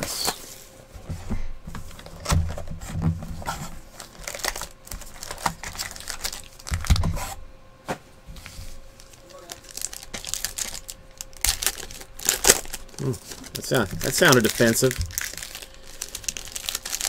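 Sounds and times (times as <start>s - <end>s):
wrapper crinkling: 3.9s - 7.0s, 9.0s - 17.0s.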